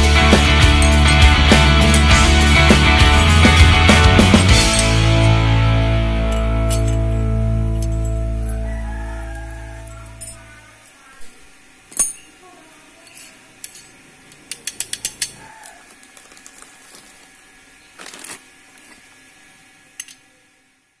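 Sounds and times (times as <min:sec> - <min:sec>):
metal gears clicking: 0:13.1 - 0:15.5
plastic wrapping rustling: 0:15.5 - 0:19.4.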